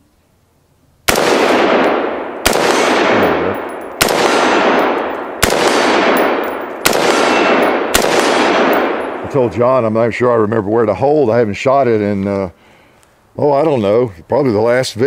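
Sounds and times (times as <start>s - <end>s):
gunshot echo: 1.1s - 9.5s
rifle shots: 1.1s - 9.5s.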